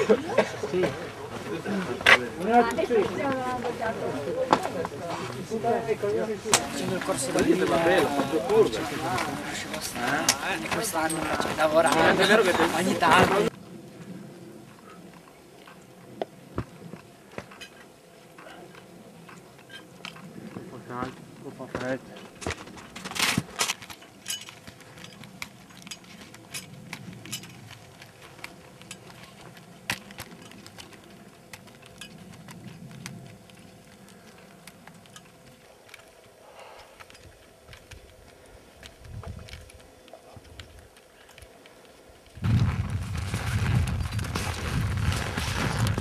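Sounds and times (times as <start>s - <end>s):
skins sliding on snow: 6.6s - 13.5s, 42.4s - 46.0s
bindings and poles clicking: 22.2s - 42.4s.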